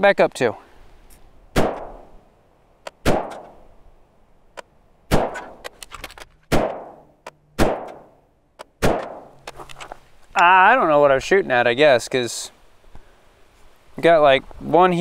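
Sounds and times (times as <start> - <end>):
rifle shots echoing: 1.5 - 2.1, 3.0 - 3.6, 5.1 - 5.7, 6.5 - 8.2, 8.8 - 9.4.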